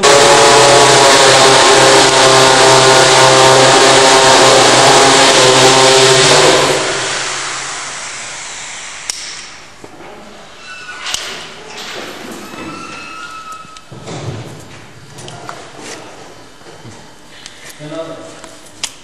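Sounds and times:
engine running with hum and hiss: 0.0 - 9.8.

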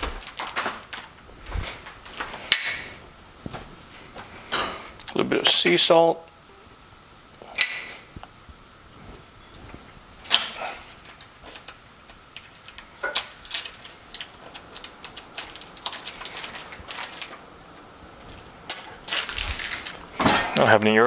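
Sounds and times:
ceramic dishes and utensils clicking: 2.5 - 3.0, 7.5 - 8.1
ringing clink: 2.5 - 3.0, 7.6 - 8.1.

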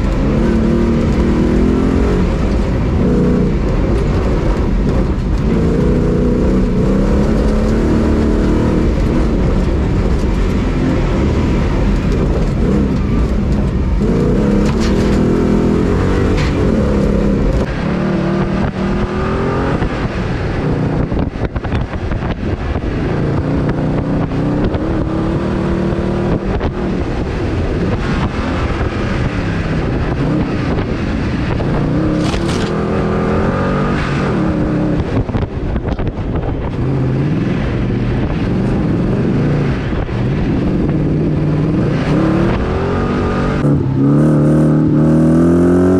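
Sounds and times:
car engine revving through gears: 0.0 - 45.9.

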